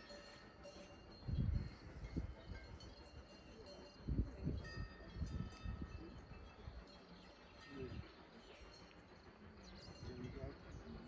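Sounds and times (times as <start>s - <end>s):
birdsong: 0.0s - 11.0s
faint bell-like ringing: 0.0s - 11.0s
wind buffeting microphone: 1.0s - 3.4s, 4.0s - 7.0s.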